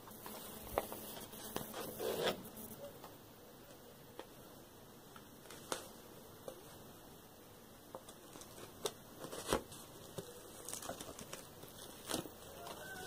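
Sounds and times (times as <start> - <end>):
sticker peeling paper crinkles: 8.0 - 13.0.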